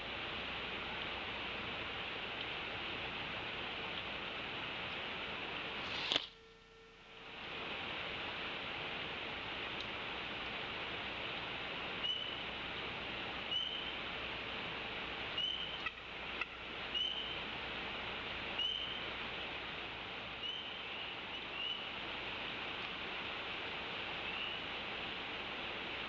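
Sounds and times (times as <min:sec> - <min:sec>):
steady hiss: 0:00.0 - 0:26.0.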